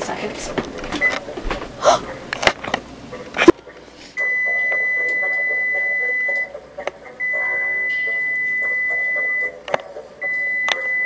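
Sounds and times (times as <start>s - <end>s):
oven timer beeping: 4.2s - 6.6s, 7.2s - 11.0s.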